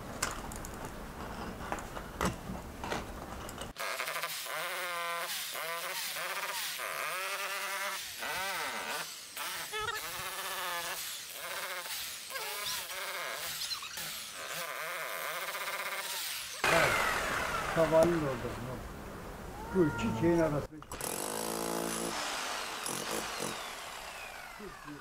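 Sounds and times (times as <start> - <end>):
cat meowing: 19.5 - 20.4.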